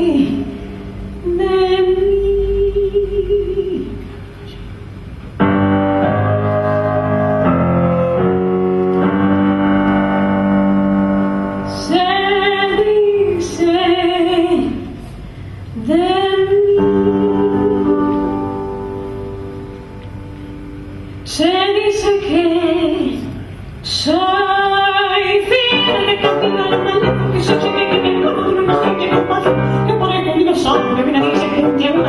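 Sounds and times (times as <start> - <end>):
woman singing: 0.0 - 0.5, 1.2 - 4.1, 11.7 - 15.0, 15.8 - 18.6, 21.3 - 32.0
grand piano chords: 0.0 - 32.0.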